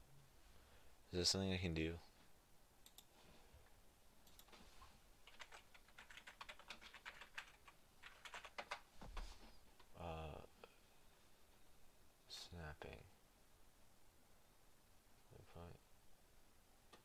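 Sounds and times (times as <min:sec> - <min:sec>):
computer keyboard typing: 0:05.2 - 0:08.8.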